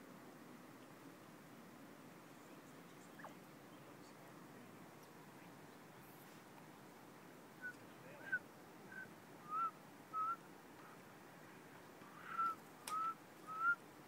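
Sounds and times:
short rising whistles: 0:12.3 - 0:13.8.

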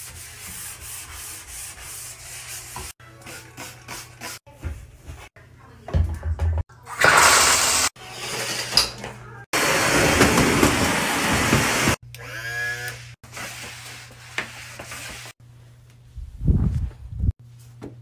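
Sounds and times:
vacuum cleaner on tile floor: 0:09.6 - 0:12.0.

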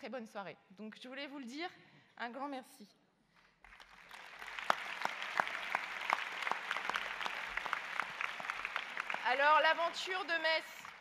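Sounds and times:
large audience applauding: 0:03.6 - 0:11.0.

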